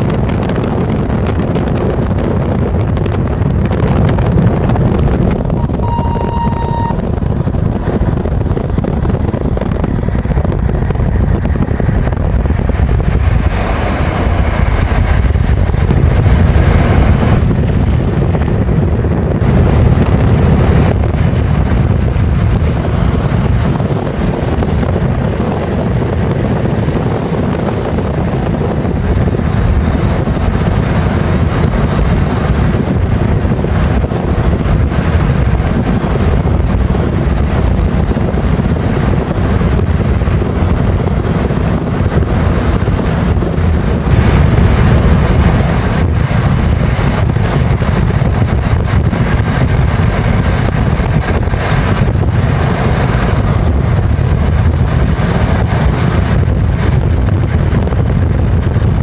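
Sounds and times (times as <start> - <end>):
road and wind noise in a car: 0.0 - 59.0
short high-pitched tone: 5.5 - 7.2.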